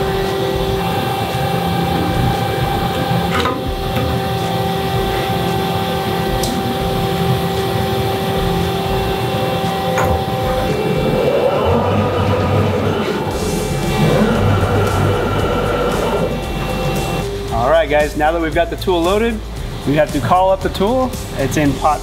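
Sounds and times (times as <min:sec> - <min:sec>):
machining center humming: 0:00.0 - 0:22.0.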